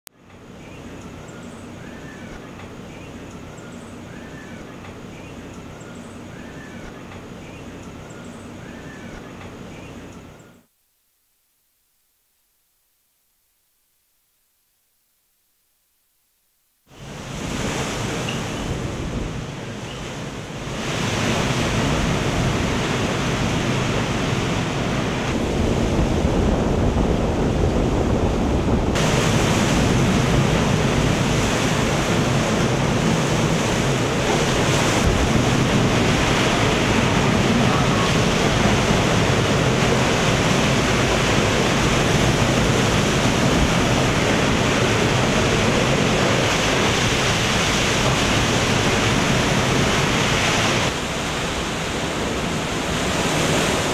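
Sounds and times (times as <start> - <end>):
storm wind: 16.9 - 53.9
wind buffeting microphone: 17.0 - 53.9
heavy rain: 18.8 - 53.9.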